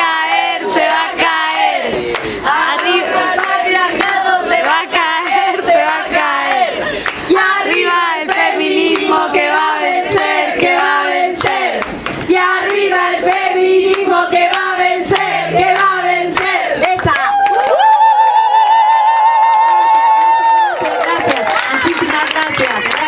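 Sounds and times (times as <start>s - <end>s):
woman singing: 0.0s - 6.7s, 12.3s - 17.8s
voices singing along: 0.0s - 19.1s
rhythmic hand clapping: 0.0s - 23.0s.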